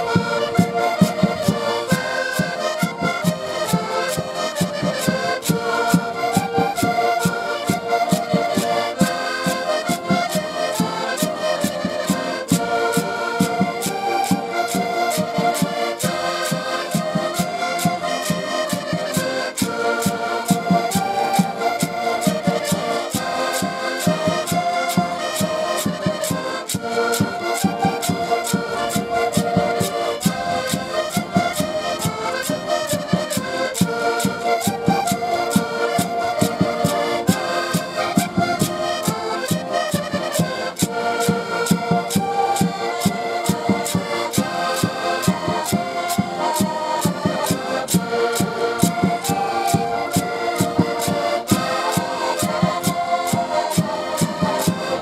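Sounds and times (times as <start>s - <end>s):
button accordions playing folk tune: 0.0s - 55.0s
quick percussion beat: 0.1s - 55.0s.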